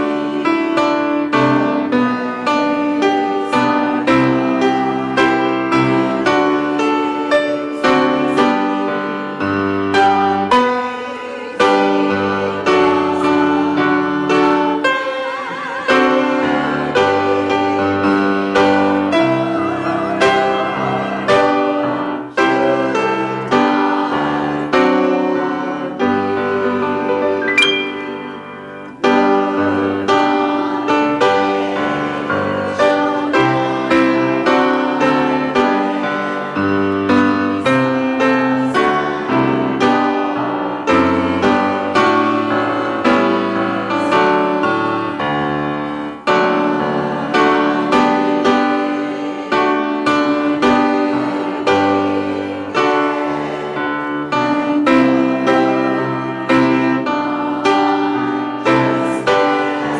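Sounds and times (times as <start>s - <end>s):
solo piano: 0.0s - 59.9s.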